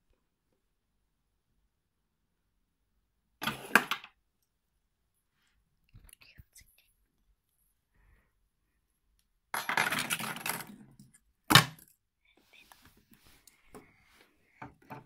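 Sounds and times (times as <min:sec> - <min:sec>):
small hard objects clattering: 0:09.6 - 0:11.9.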